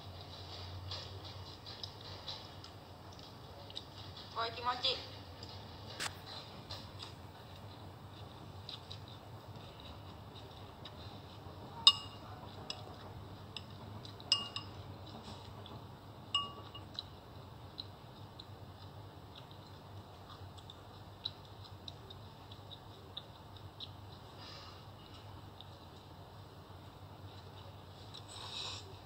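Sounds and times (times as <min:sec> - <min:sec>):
cutlery clinking against a dish: 0:11.8 - 0:15.5, 0:16.3 - 0:17.1.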